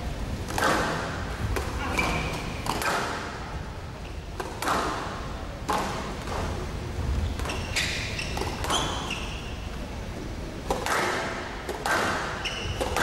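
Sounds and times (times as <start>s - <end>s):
squash ball knocks: 10.6s - 13.0s.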